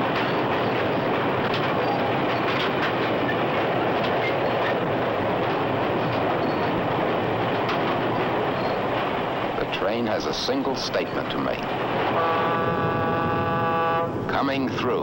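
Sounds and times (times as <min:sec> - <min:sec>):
rail joint clicks: 0:00.0 - 0:12.9
train wheels rumbling on rails: 0:00.0 - 0:15.0.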